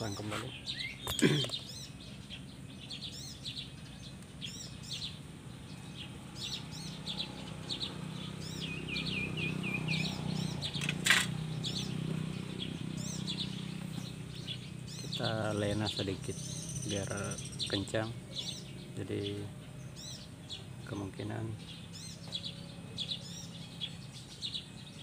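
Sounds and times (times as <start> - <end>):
small birds chirping: 0.0 - 25.0
sharp click: 10.7 - 11.4.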